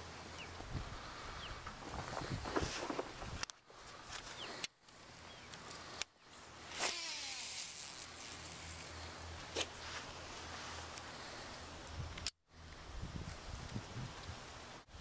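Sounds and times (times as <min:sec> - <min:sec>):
fishing reel clicks: 0:06.7 - 0:08.9
line whirring off reel: 0:06.7 - 0:09.0.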